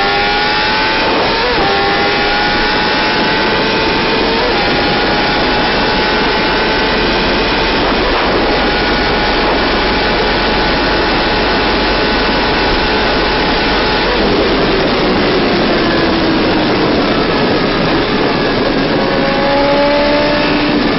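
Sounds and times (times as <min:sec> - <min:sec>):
loud rushing noise: 0:00.0 - 0:20.9
motorcycle engine at high revs: 0:00.0 - 0:20.9.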